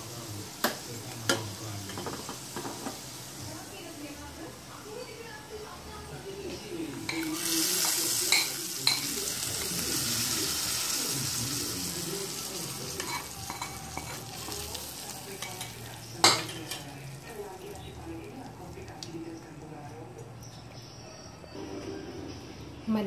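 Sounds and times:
hot oil sizzling: 0:00.0 - 0:19.4
metal utensil clinking on dish: 0:07.1 - 0:09.2, 0:13.0 - 0:14.6.

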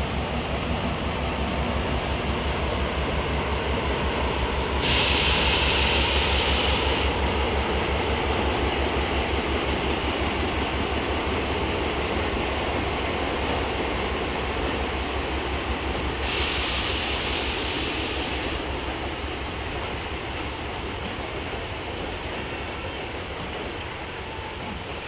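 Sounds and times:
train rumbling over bridge: 0:00.0 - 0:25.0
hiss: 0:04.8 - 0:07.3, 0:16.2 - 0:18.8.

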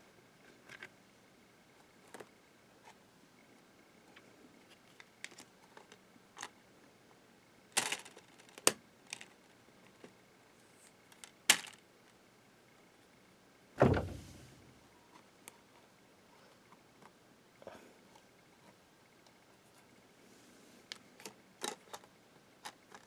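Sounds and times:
dull thud of tray flopping: 0:13.8 - 0:14.6.

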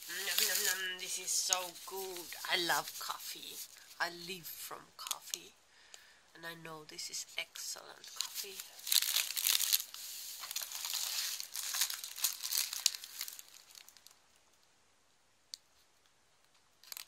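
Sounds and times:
rustling of packing filler: 0:08.2 - 0:14.1.

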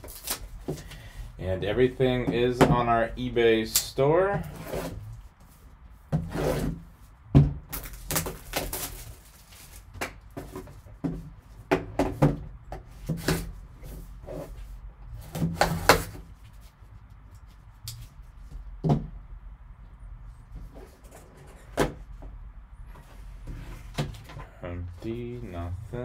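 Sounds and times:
cardboard rubbing: 0:04.4 - 0:06.9
plastic wrap crinkling: 0:07.7 - 0:10.0.

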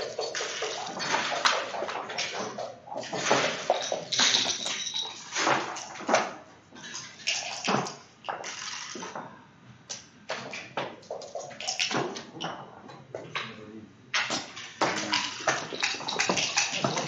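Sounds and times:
checkers clacking on board: 0:00.0 - 0:06.0, 0:14.2 - 0:17.0.

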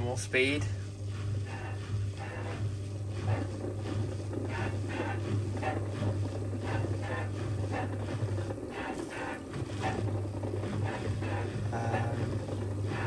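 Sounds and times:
low motor hum: 0:00.0 - 0:13.0.

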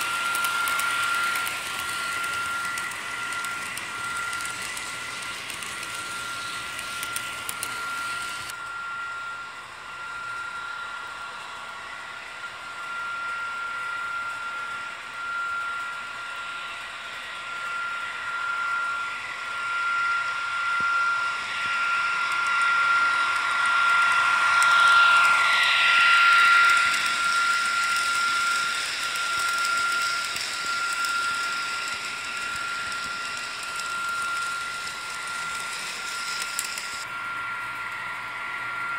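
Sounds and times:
model train running on track: 0:00.0 - 0:38.9.

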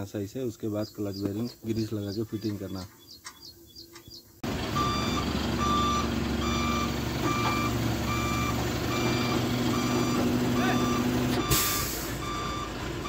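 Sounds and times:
crane diesel engine running: 0:04.4 - 0:13.0
reversing alarm beeping: 0:04.8 - 0:12.8.

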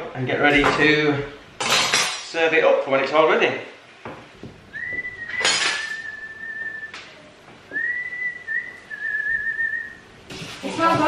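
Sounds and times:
kitchenware clattering: 0:00.5 - 0:02.4, 0:05.3 - 0:06.2, 0:10.3 - 0:11.0
man whistling: 0:04.7 - 0:07.1, 0:07.7 - 0:10.0.

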